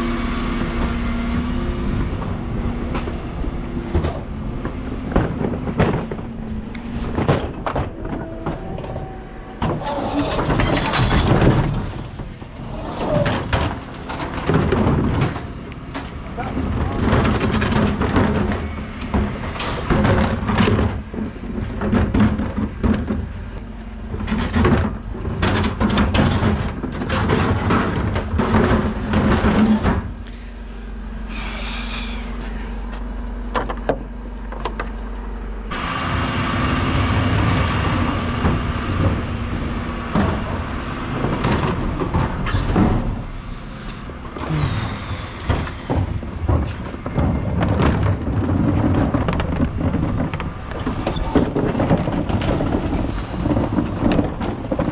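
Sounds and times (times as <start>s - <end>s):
low engine hum: 0.0s - 25.8s, 26.7s - 54.9s
wheelie bins rattling over tarmac: 0.0s - 54.9s.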